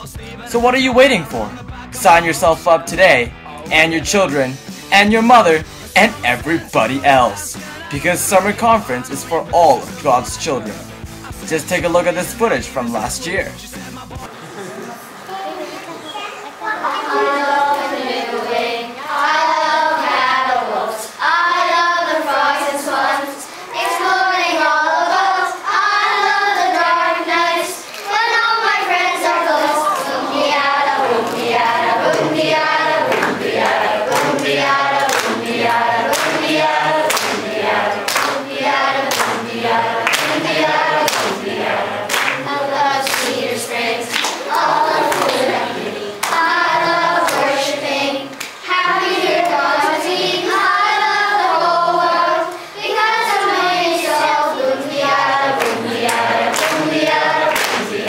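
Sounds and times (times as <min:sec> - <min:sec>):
children singing in unison: 0:15.9 - 0:58.0
hand claps: 0:31.0 - 0:38.4, 0:39.1 - 0:39.4, 0:40.0 - 0:41.4, 0:42.1 - 0:42.4, 0:43.0 - 0:43.4, 0:44.1 - 0:45.6, 0:46.2 - 0:46.4, 0:55.6 - 0:58.0.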